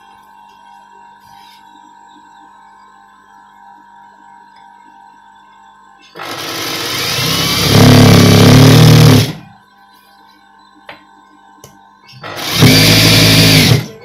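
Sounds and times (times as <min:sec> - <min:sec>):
sewing machine running: 0:06.2 - 0:09.5, 0:12.2 - 0:14.0.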